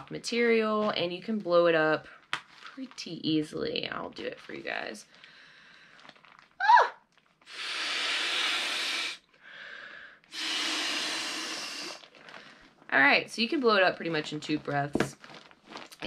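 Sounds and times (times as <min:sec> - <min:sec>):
breaths blown into pillow valve: 0:07.4 - 0:12.1
person inhaling: 0:07.5 - 0:12.6.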